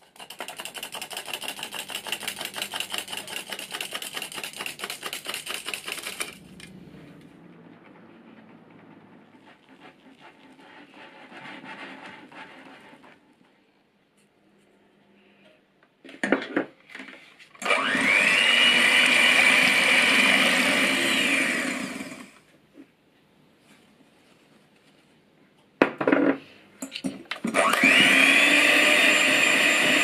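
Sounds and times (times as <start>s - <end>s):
whisk stirring in glass bowl: 0.0s - 6.5s, 8.3s - 13.2s
electric hand mixer whine: 17.6s - 22.4s, 27.5s - 30.0s.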